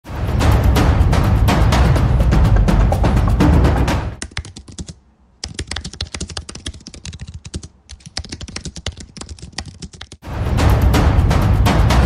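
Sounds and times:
fast keyboard typing: 4.2 - 10.2.

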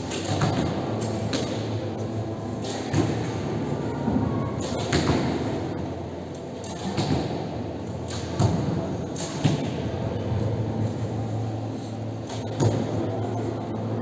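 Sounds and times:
arrows striking targets: 0.0 - 1.9, 2.5 - 3.5, 4.6 - 5.7, 6.6 - 10.0, 12.2 - 13.0.

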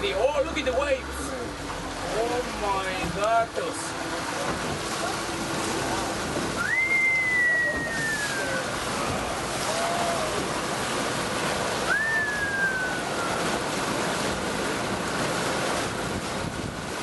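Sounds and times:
boat under way: 0.0 - 17.0
sea and wind: 0.0 - 17.0
waves breaking on rocks: 0.0 - 17.0
high falling whistle tones: 6.6 - 8.6, 11.9 - 13.4.

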